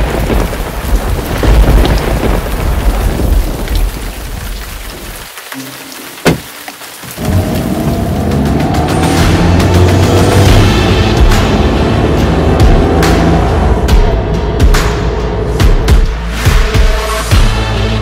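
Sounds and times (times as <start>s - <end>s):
thunder rumbling: 0.0s - 5.2s
rain: 0.0s - 14.5s.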